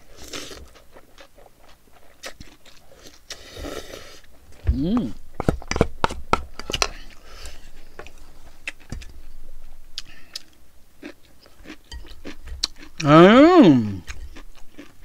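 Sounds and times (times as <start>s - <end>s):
person chewing noodles: 0.0s - 5.9s, 10.0s - 15.0s
person humming mmm: 4.6s - 5.2s, 13.0s - 14.1s.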